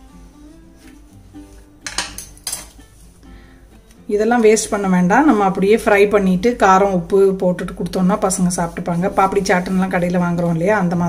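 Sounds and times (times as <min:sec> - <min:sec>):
plucked-string music: 0:00.0 - 0:11.0
spatula clattering on stone: 0:01.8 - 0:02.8.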